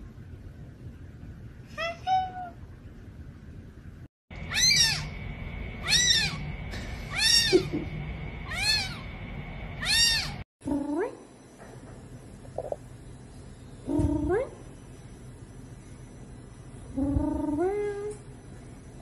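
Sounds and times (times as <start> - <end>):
kitten mewing: 4.5 - 5.1, 5.8 - 6.4, 7.1 - 7.8.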